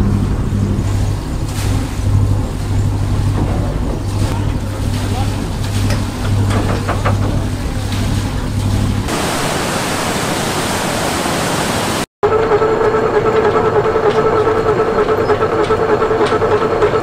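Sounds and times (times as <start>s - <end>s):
boat engine idling: 0.0s - 17.0s
water rushing through sluices: 0.0s - 17.0s
machinery whining: 9.1s - 17.0s.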